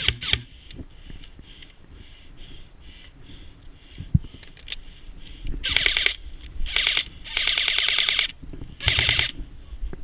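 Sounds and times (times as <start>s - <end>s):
airsoft rifle rapid clacks: 0.0s - 0.5s, 5.6s - 9.4s.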